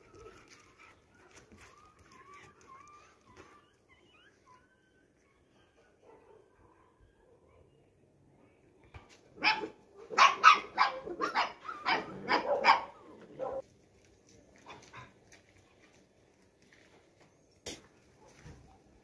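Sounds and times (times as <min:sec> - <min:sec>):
dog barking: 0:06.0 - 0:07.5, 0:09.4 - 0:13.6.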